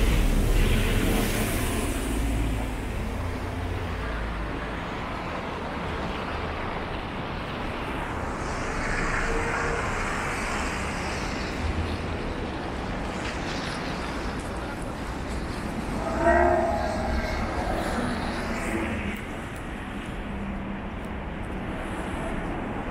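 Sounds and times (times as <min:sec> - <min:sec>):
car passing hiss: 0:00.0 - 0:03.9
bus engine rumble: 0:00.0 - 0:22.9
cars on wet road: 0:00.0 - 0:22.9.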